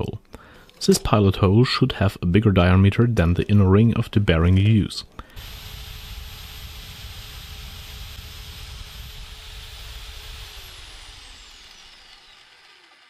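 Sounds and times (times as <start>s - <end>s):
drill press whining: 5.2s - 13.0s.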